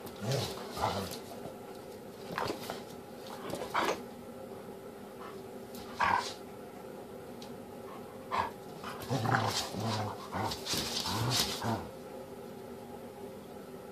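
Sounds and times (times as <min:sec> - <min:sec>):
dogs growling and yipping: 0:00.1 - 0:01.2, 0:05.9 - 0:06.4, 0:08.3 - 0:11.9.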